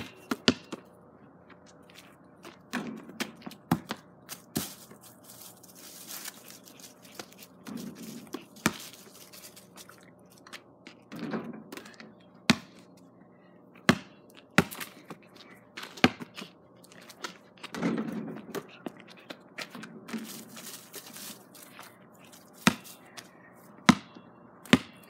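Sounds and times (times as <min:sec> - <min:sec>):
basketball bouncing on ground: 0:00.0 - 0:00.9, 0:02.5 - 0:05.0, 0:07.1 - 0:09.0, 0:12.5 - 0:12.9, 0:13.8 - 0:15.2, 0:16.0 - 0:16.4, 0:22.6 - 0:23.0, 0:23.8 - 0:25.0
basketball knocking on backboard and rim: 0:02.7 - 0:04.0, 0:13.9 - 0:14.7.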